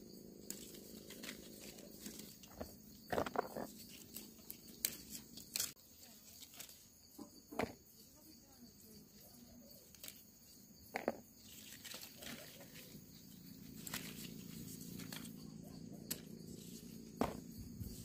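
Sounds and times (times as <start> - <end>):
leaves rustling and stems snapping: 0.4 - 2.8, 3.7 - 6.9, 9.8 - 10.3, 11.4 - 17.4.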